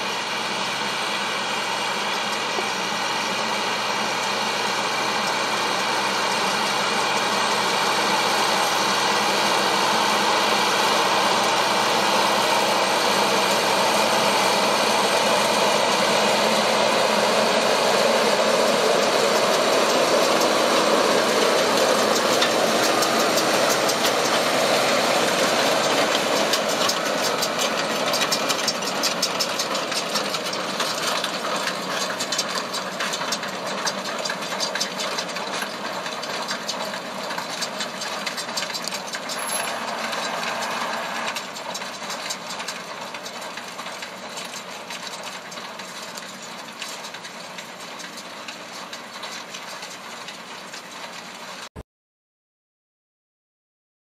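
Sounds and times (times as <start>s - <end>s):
tractor diesel engine under load: 0.0s - 51.8s
fast rattling clatter: 10.2s - 51.7s.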